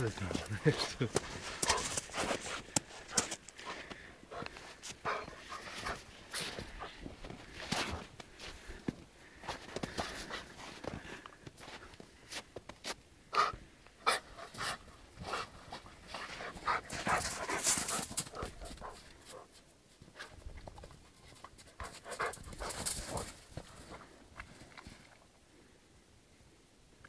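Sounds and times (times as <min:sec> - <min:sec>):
snow crunching: 0:00.0 - 0:08.9, 0:15.7 - 0:19.0
dog panting: 0:00.3 - 0:07.1, 0:13.4 - 0:19.6, 0:21.2 - 0:24.0.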